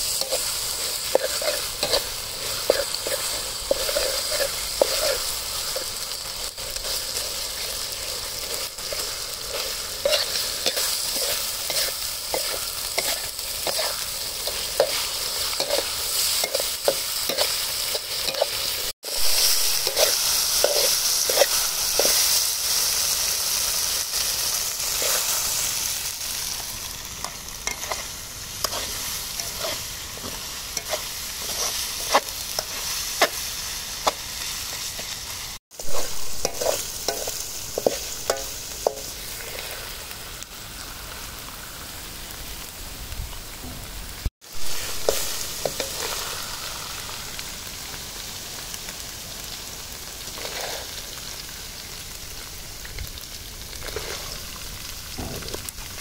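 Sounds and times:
utensil scraping a pan: 0.0s - 6.0s, 8.4s - 22.4s, 27.7s - 34.2s, 35.8s - 39.8s
meat sizzling in a pan: 0.0s - 56.0s.

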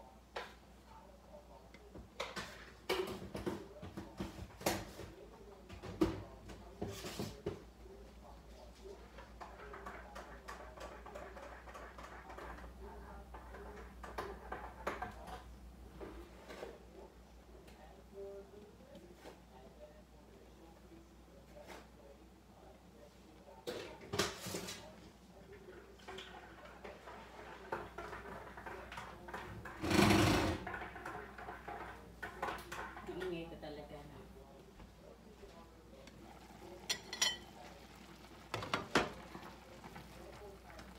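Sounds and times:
soup boiling hard: 26.2s - 33.0s, 36.0s - 40.9s
soup bubbling in a pan: 35.9s - 40.9s.

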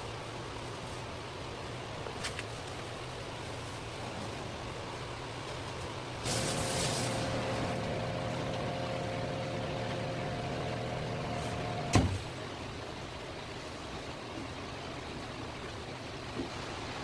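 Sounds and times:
machine motor humming: 6.2s - 12.3s
sharp clunk: 11.8s - 12.3s.

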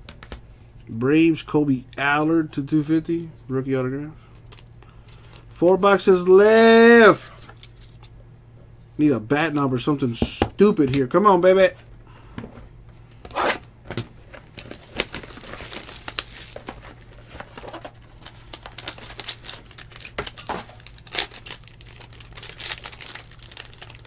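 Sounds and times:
foil wrapper tearing and crinkling: 14.4s - 24.0s.

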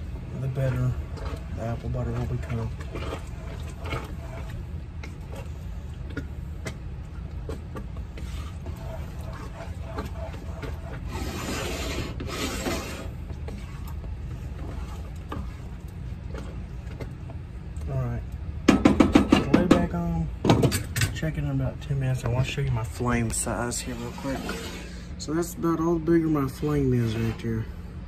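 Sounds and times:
spoon scraping a metal pot: 0.5s - 4.6s, 7.5s - 16.4s, 23.6s - 25.1s.

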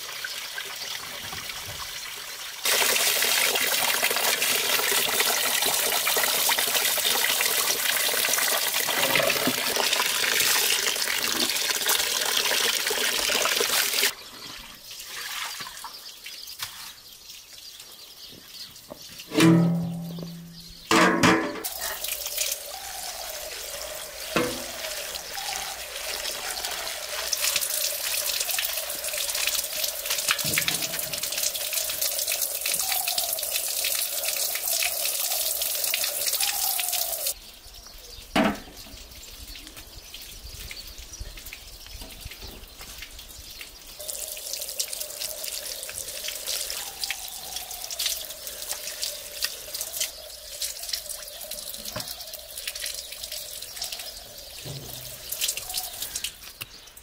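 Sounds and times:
water running from a tap: 0.0s - 14.1s, 21.6s - 37.4s, 44.0s - 57.0s.

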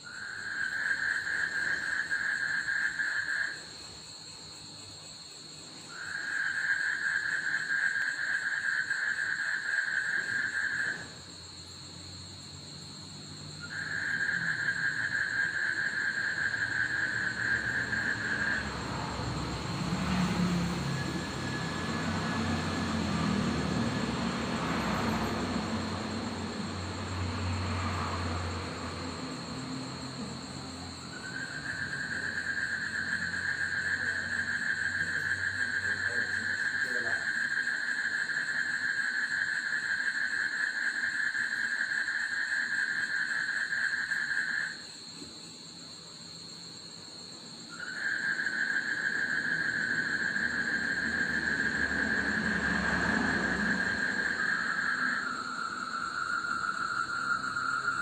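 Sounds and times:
distant vehicle rumbling: 10.1s - 39.4s, 47.6s - 58.0s.

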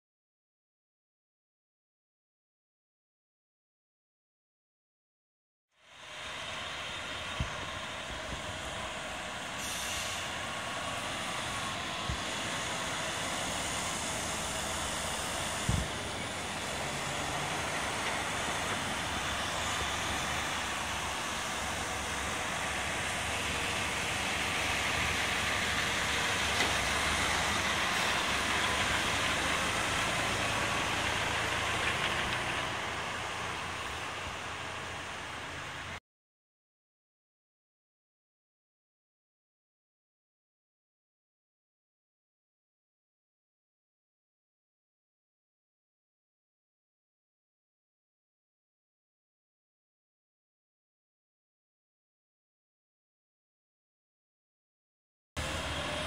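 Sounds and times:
truck diesel engine running: 6.1s - 36.0s
air brake hiss: 9.5s - 10.5s.

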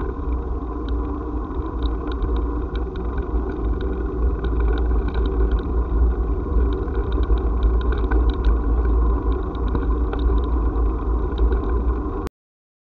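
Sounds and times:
wind rumbling on microphone: 0.0s - 12.3s.

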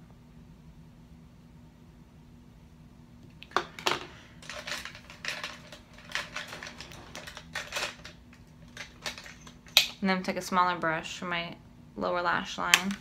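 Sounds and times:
makeup items clicking and clattering: 3.4s - 10.0s.

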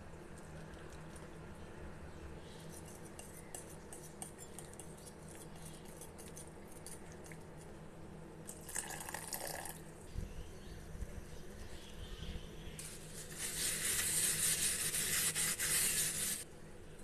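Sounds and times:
whisk scraping ceramic bowl: 2.7s - 7.7s, 12.9s - 16.4s.

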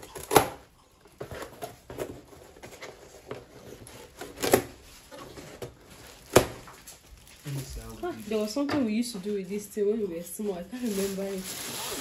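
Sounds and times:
plastic strapping rustling: 3.8s - 9.7s, 10.5s - 12.0s.

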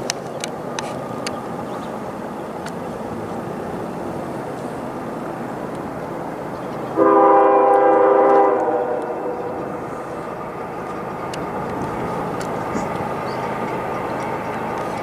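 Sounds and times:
train rumbling past: 0.0s - 15.0s
locomotive air horn blast: 7.0s - 9.7s.

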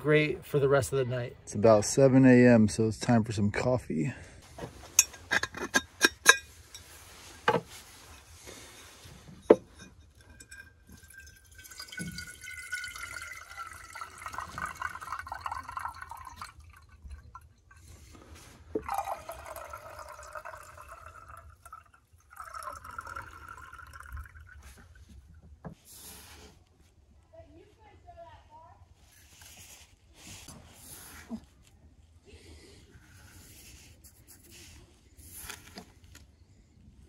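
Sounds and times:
water pouring into metal pot: 10.2s - 18.0s, 18.7s - 25.0s.

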